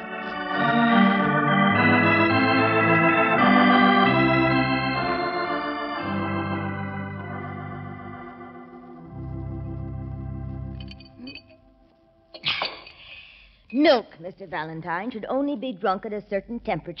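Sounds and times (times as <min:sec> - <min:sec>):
organ playing held chords: 0:00.0 - 0:12.3.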